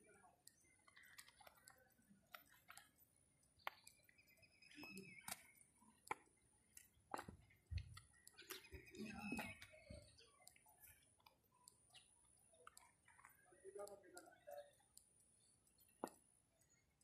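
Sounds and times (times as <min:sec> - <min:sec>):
faint clicks: 0:00.0 - 0:16.3.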